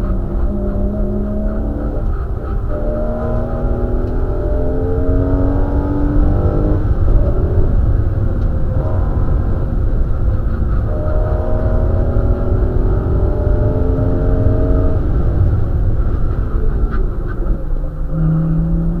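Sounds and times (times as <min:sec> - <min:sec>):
heavy low rumble: 0:00.0 - 0:19.0
race car engine accelerating: 0:00.0 - 0:19.0.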